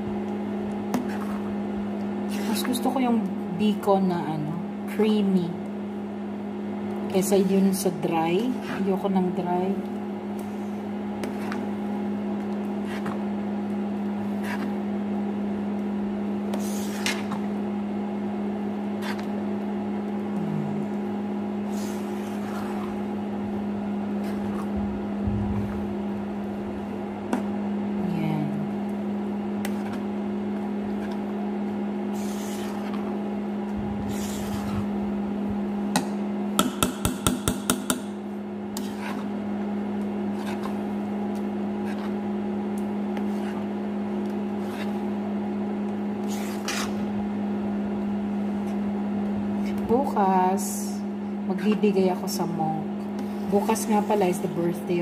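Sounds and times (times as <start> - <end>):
induction cooktop humming: 0.0 - 55.0
thick rice bubbling: 9.8 - 28.0, 28.7 - 36.4
metal spatula scraping a pan: 32.1 - 33.0, 34.0 - 34.9, 46.2 - 47.0.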